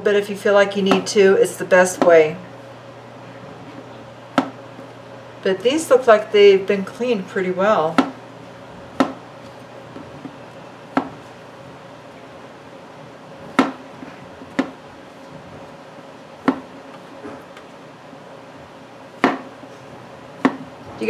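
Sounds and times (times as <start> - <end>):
knife chopping on cutting board: 13.5 - 13.8, 16.4 - 16.7, 19.2 - 19.5.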